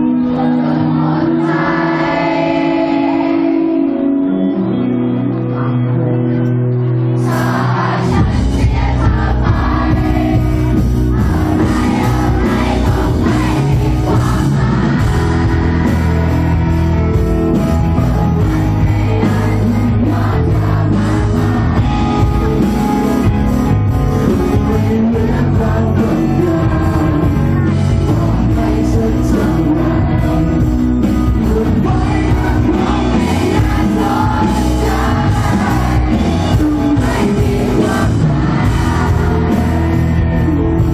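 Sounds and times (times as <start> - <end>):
rock band playing live: 0.0 - 40.9
man singing: 24.2 - 40.9.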